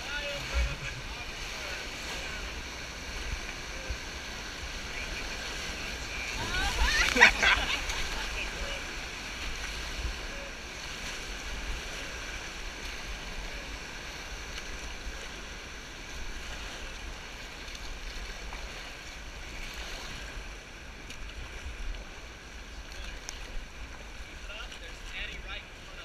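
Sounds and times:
whitewater rapids rushing: 0:00.0 - 0:20.4
wind rumble on microphone: 0:00.0 - 0:22.3.

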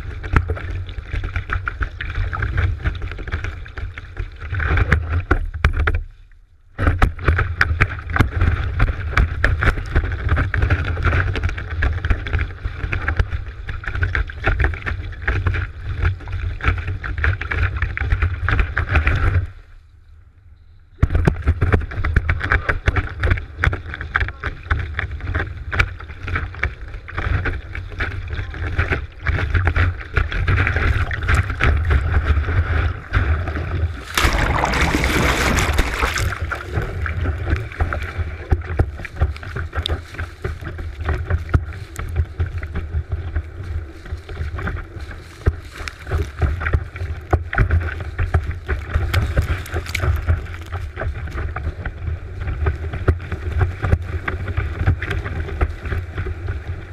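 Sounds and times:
wind rumble on microphone: 0:00.0 - 0:56.9
water slapping housing: 0:21.0 - 0:56.9
water spray crackling: 0:34.0 - 0:37.0.

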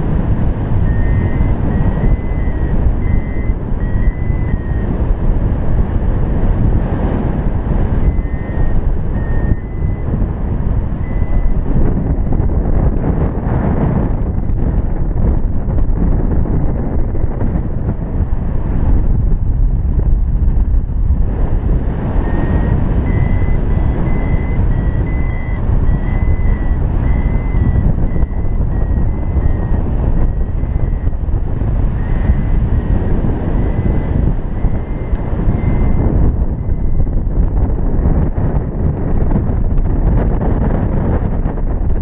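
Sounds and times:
variometer beeping: 0:00.0 - 0:05.3, 0:07.8 - 0:13.1, 0:13.7 - 0:14.8, 0:16.5 - 0:17.7, 0:22.0 - 0:38.7
wind rushing over microphone: 0:00.0 - 0:42.0.

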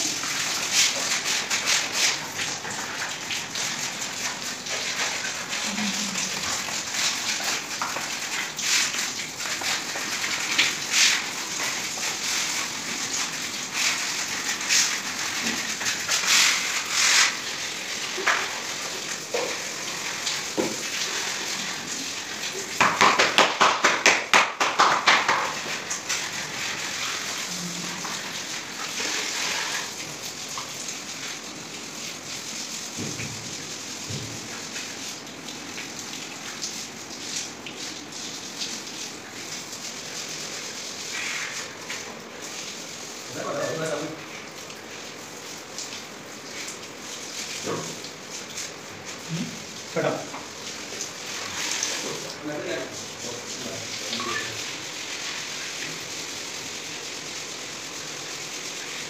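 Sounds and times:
cloth scraping grout on tiles: 0:00.4 - 0:09.0, 0:09.6 - 0:22.0, 0:29.0 - 0:30.0
quick scrubbing strokes: 0:12.0 - 0:17.4.

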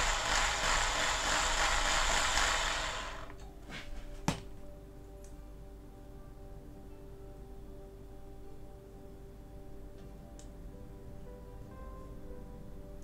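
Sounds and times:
power drill grinding into metal: 0:00.0 - 0:03.4.

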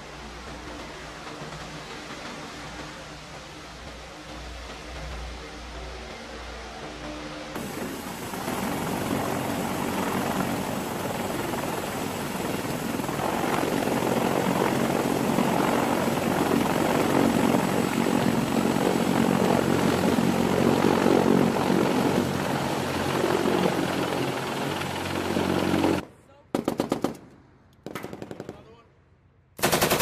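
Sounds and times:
helicopter rotors and engines: 0:07.6 - 0:26.0.

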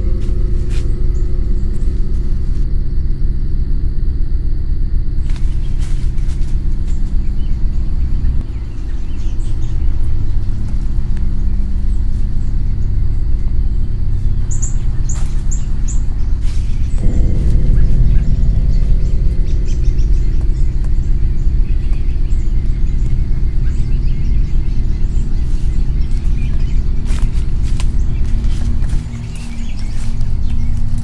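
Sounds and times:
dark horror film score drone: 0:00.0 - 0:31.0
bird chirps: 0:06.9 - 0:31.0.

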